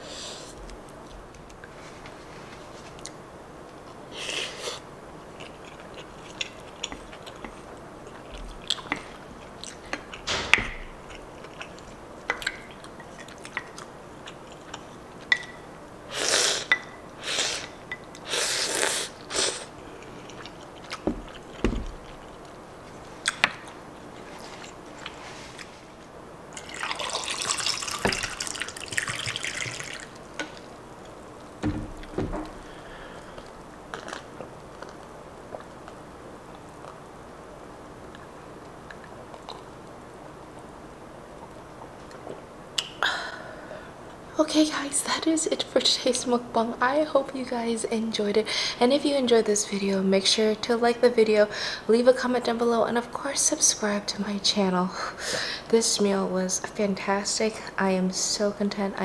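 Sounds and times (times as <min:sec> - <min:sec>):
liquid pouring into a glass: 0:26.6 - 0:30.1.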